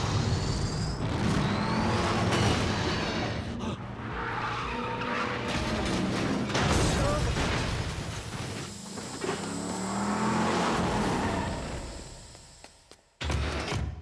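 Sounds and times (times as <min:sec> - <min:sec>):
car engine running hard: 0:08.6 - 0:12.4.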